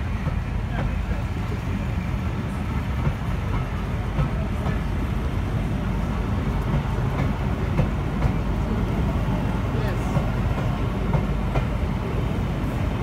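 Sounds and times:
train coaches rumbling past: 0:00.0 - 0:13.0
train wheel clicks: 0:06.5 - 0:09.0.

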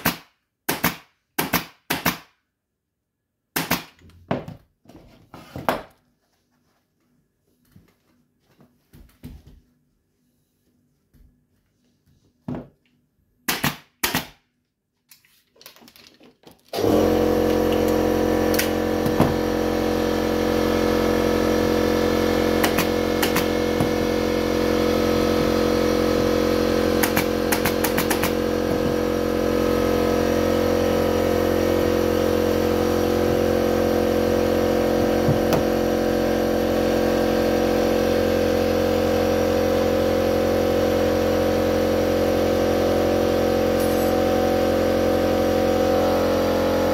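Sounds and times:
staple gun shots: 0:00.0 - 0:02.3, 0:03.5 - 0:04.0, 0:13.5 - 0:14.4
air compressor motor hum: 0:16.8 - 0:46.9.

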